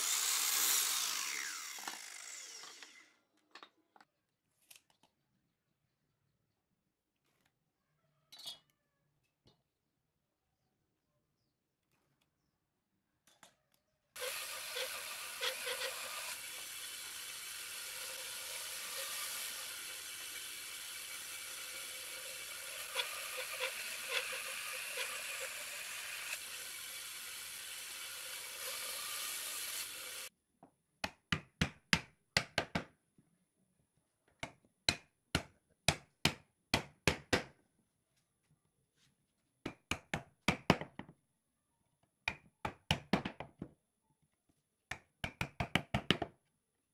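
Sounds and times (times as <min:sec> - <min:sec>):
band saw cutting wood: 0:00.0 - 0:03.1, 0:14.2 - 0:30.3.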